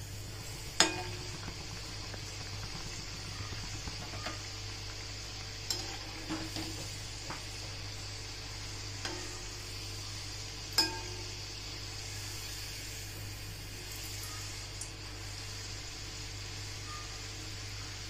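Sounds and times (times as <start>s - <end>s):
dough sizzling in hot oil: 0.0s - 18.0s
metal spoon clinking on pan: 10.8s - 11.2s.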